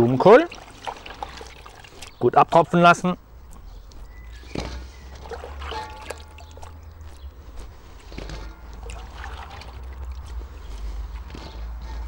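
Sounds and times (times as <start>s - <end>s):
water dripping into pot: 5.1s - 7.0s, 8.7s - 10.3s.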